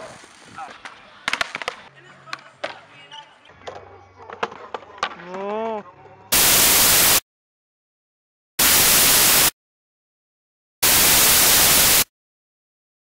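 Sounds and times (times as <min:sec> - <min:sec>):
white-noise static hiss bursts: 0:06.3 - 0:07.2, 0:08.6 - 0:09.5, 0:10.8 - 0:12.1.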